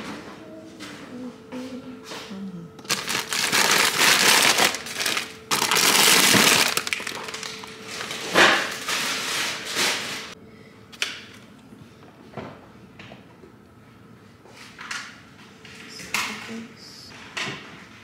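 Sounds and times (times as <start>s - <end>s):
bags and plastic packaging rustling: 2.8s - 10.4s.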